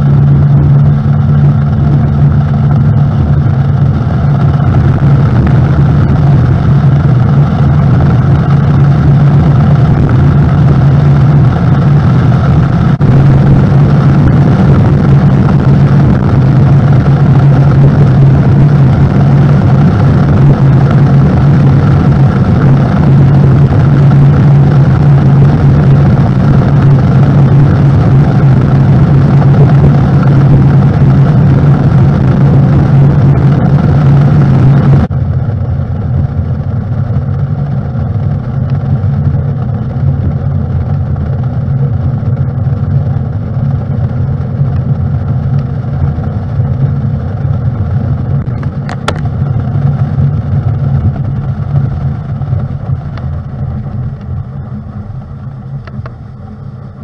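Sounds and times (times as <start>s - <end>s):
outboard engine hum: 0.0s - 57.0s
wind: 0.0s - 57.0s.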